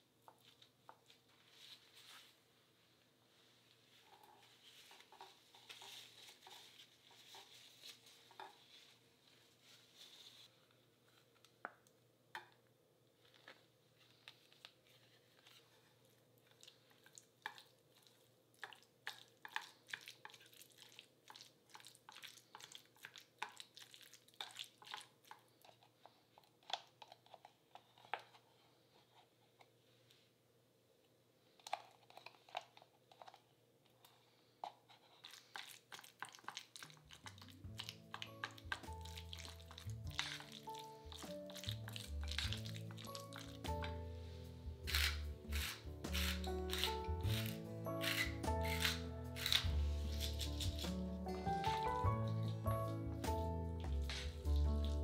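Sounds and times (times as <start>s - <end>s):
soft squishing: 0.0s - 30.4s, 31.0s - 55.0s
paper towel rustling: 0.4s - 10.8s
fork stirring in a metal bowl: 35.1s - 44.0s, 44.8s - 52.7s.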